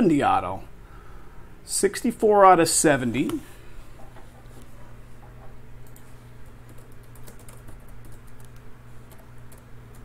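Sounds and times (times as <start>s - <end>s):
keyboard typing clicks: 5.8s - 10.0s.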